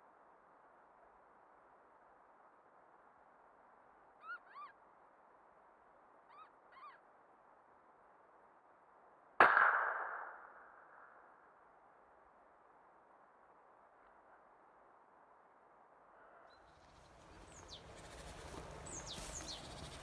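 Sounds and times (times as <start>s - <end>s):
rifle shot with echo: 9.4s - 11.0s.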